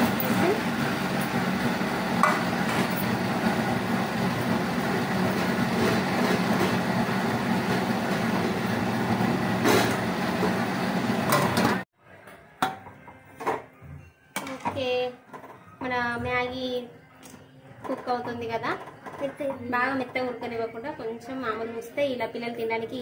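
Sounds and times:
gas burner rushing hum: 0:00.0 - 0:11.9.

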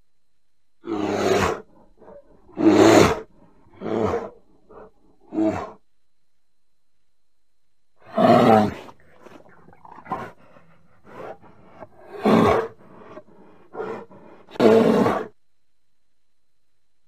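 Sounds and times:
bear calling: 0:00.8 - 0:05.8.

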